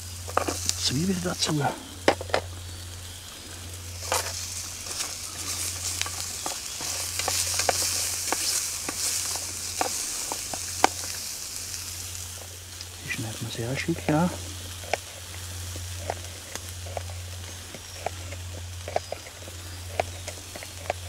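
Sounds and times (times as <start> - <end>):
food sizzling in a frying pan: 0.0 - 21.0
spatula clicking and scraping pan: 0.3 - 0.8, 2.0 - 2.5, 3.9 - 11.7, 14.7 - 21.0.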